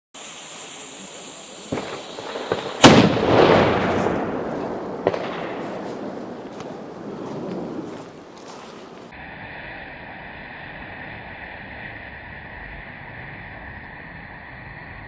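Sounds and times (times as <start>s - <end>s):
burning fuse hissing: 0.2s - 4.9s
very loud boom: 1.7s - 7.9s.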